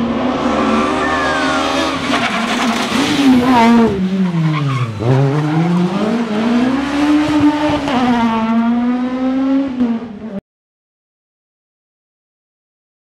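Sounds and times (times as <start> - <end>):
rally car engine pulling hard: 0.0 - 10.4.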